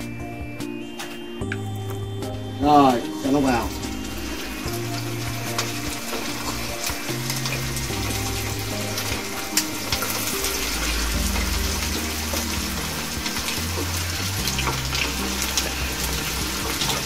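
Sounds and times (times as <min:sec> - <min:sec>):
chicken sizzling in hot oil: 0:02.7 - 0:17.0.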